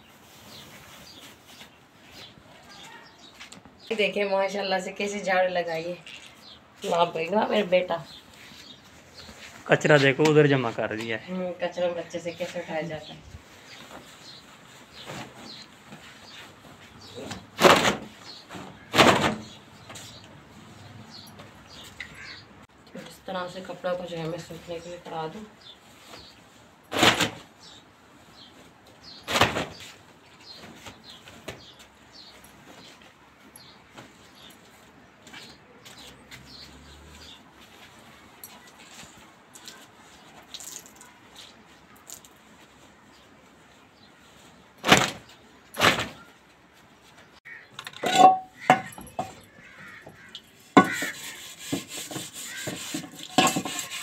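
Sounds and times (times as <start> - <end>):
faint birds chirping: 0.0 - 26.8, 27.4 - 53.0
wet laundry flapping: 29.3 - 31.8, 44.8 - 46.3
metal dishes clattering: 47.8 - 49.6, 50.7 - 51.2, 52.1 - 54.0.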